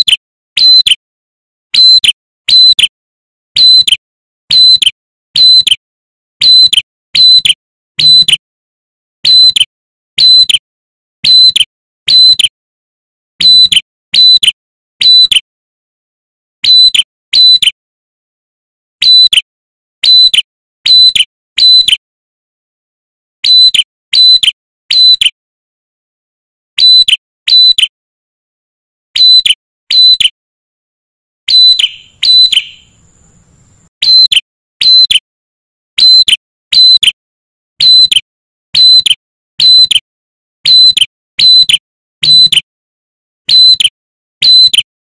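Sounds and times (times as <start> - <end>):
bird whistling sharp notes: 0.0 - 1.0, 3.6 - 5.7, 6.4 - 8.4, 9.2 - 9.6, 10.2 - 10.6, 16.6 - 17.6, 20.9 - 21.9, 23.4 - 25.3, 31.5 - 35.2.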